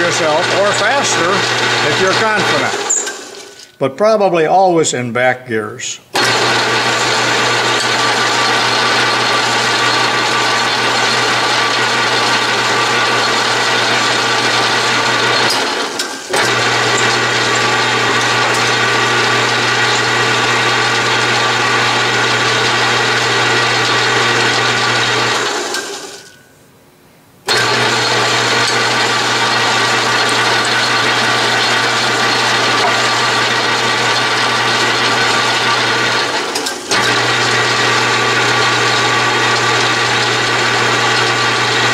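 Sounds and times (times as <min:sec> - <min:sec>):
lathe gear whine: 0:00.0 - 0:03.7, 0:06.2 - 0:26.3, 0:27.5 - 0:41.9.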